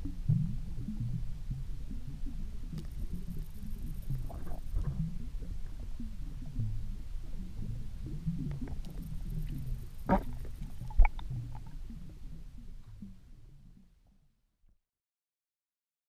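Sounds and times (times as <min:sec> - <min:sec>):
underwater water rumble: 0:00.0 - 0:14.0
fish knocking against camera: 0:10.0 - 0:11.7.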